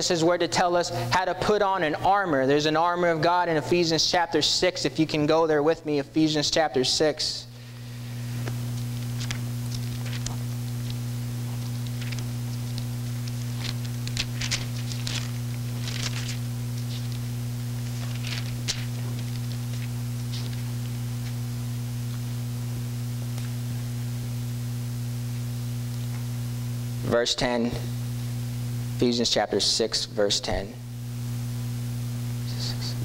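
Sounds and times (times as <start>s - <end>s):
low electrical hum: 0.0s - 33.0s
pages turning: 8.4s - 21.4s.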